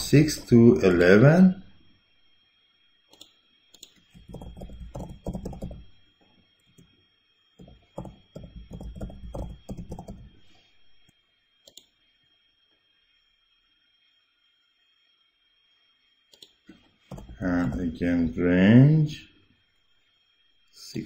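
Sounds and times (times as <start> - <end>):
typing on computer keyboard: 3.2 - 5.9, 7.6 - 10.3, 17.1 - 17.8
sharp click: 16.3 - 16.6.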